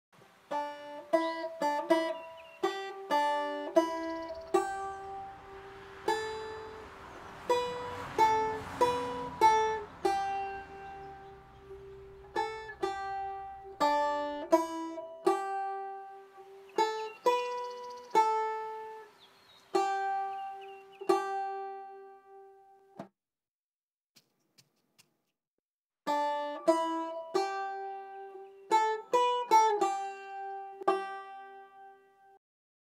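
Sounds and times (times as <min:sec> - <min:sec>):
banjo plucked melody: 0:00.5 - 0:23.1, 0:26.1 - 0:32.4.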